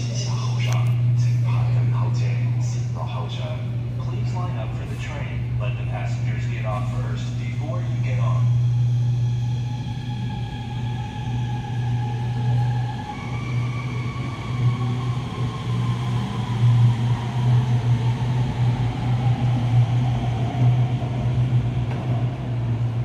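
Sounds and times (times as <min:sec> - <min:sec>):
train electric whine: 0:00.0 - 0:23.0
train rumbling: 0:00.0 - 0:23.0.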